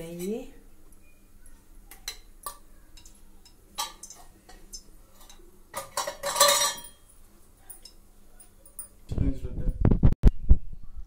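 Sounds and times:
metal utensils clinking: 2.0s - 9.0s.

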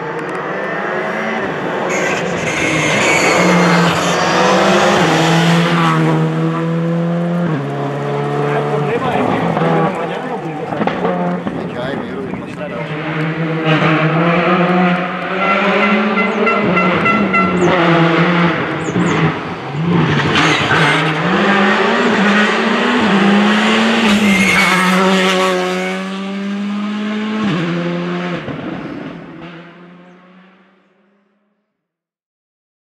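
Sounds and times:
rally car engine running hard: 0.0s - 30.6s.

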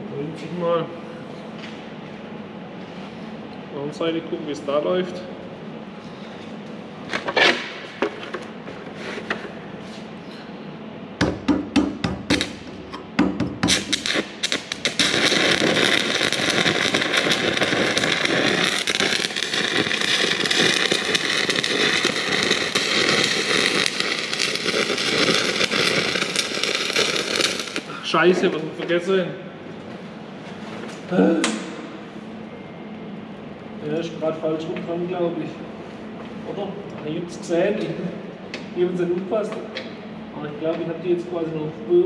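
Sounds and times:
arc welding crackle: 11.3s - 28.7s.

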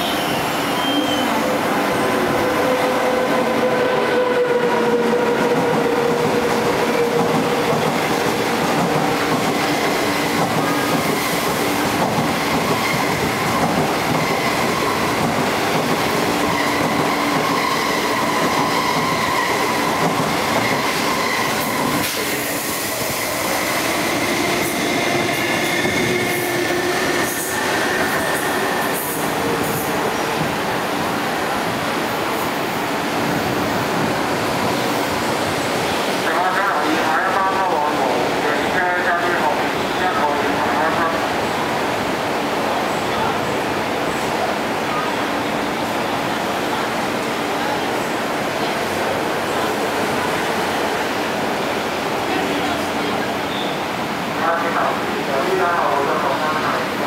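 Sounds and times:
train wheels rumbling over rails: 1.4s - 36.7s.

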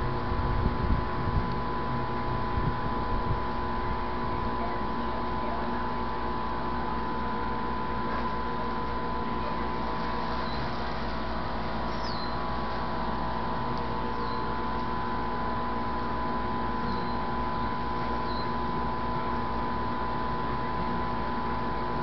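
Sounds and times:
steady multi-pitch hum: 0.0s - 22.0s
small bird chirping: 10.4s - 10.7s, 11.9s - 12.4s, 14.1s - 14.5s, 16.8s - 18.6s.

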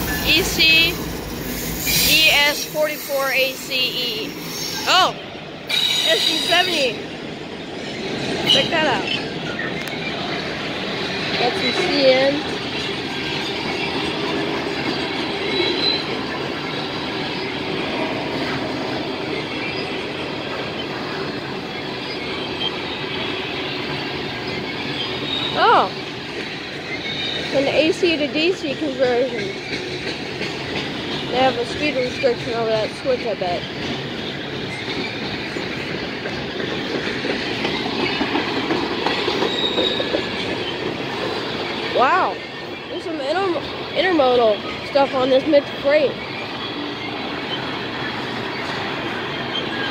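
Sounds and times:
train wheels rumbling on rail: 0.0s - 49.9s
high wheel squeal: 1.0s - 7.1s, 13.2s - 18.6s, 39.0s - 42.6s, 46.0s - 49.9s.

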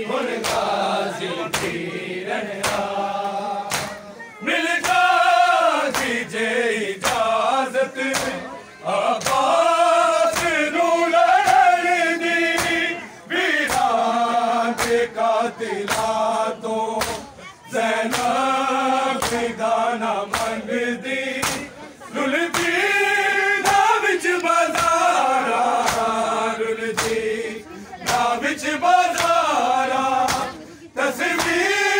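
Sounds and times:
crowd of men chanting a lament: 0.0s - 31.9s
hands beating on bare chests: 2.6s - 2.9s, 3.7s - 4.0s, 8.1s - 8.4s, 10.3s - 10.6s, 12.5s - 12.8s, 19.2s - 19.5s, 20.3s - 20.6s, 21.4s - 21.7s.

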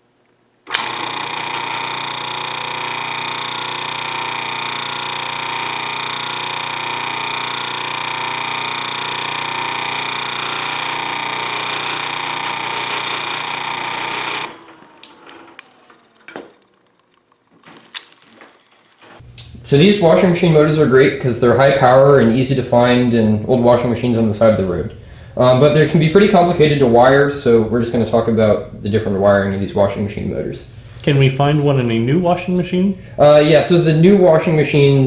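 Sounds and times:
electric motor humming and whining: 0.7s - 19.5s
clicks: 0.7s - 19.6s.

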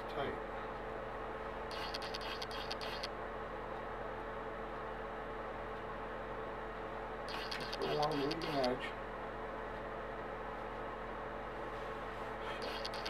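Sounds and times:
heater hum: 0.0s - 13.0s
paintbrush scratching on wing: 1.7s - 3.1s, 7.3s - 8.7s, 12.5s - 13.0s.

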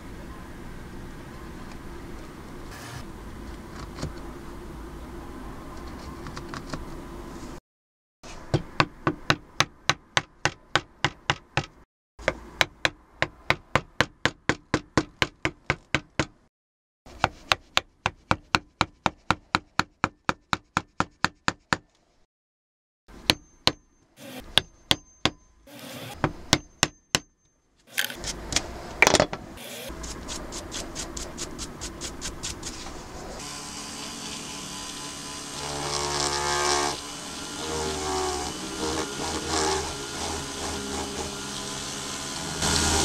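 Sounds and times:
mallet striking chisel into wood: 8.5s - 16.4s, 23.2s - 25.5s, 26.2s - 27.4s.

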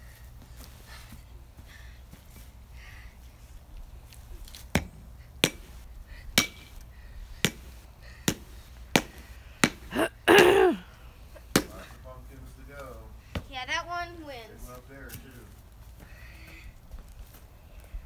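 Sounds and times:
bat hitting pumpkin: 4.8s - 5.7s, 6.4s - 6.7s, 8.3s - 10.6s, 11.5s - 11.8s
short falling cry: 9.9s - 10.9s.

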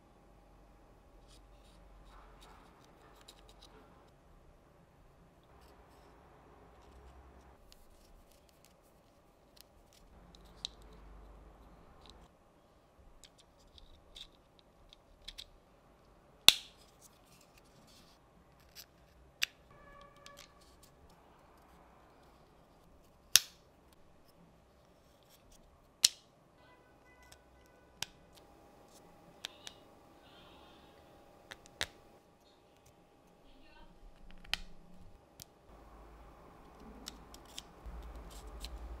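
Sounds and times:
wooden parts snapping: 23.4s - 23.6s, 26.0s - 26.2s.

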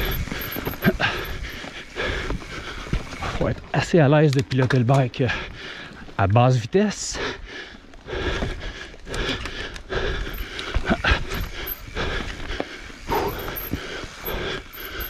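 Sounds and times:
person breathing hard: 0.0s - 3.3s, 5.3s - 6.1s, 7.1s - 15.0s
bike clattering over bumps: 0.0s - 5.5s, 8.4s - 15.0s
bike tyres rolling on dirt: 0.0s - 15.0s.

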